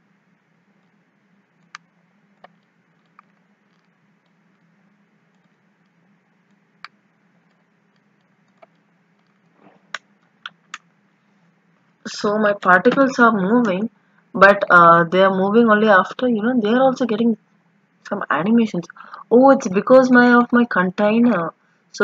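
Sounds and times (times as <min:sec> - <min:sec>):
faint low hum: 0:00.0 - 0:22.0
computer mouse clicks: 0:06.8 - 0:10.9.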